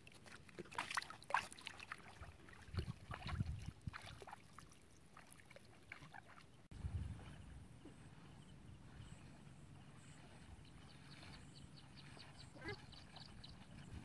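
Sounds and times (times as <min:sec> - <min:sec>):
water splashing and sloshing: 0:00.0 - 0:14.0.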